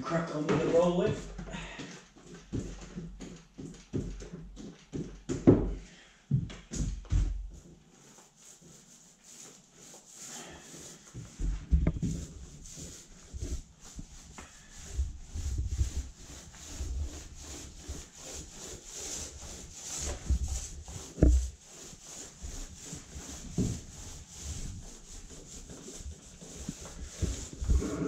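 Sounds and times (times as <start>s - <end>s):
paint roller rubbing on door: 0.6s - 1.4s, 7.1s - 28.0s.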